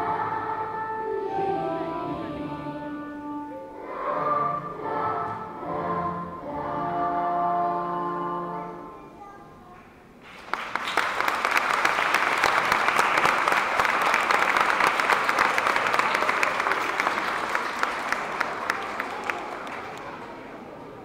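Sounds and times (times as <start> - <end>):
audience clapping: 10.2 - 20.7.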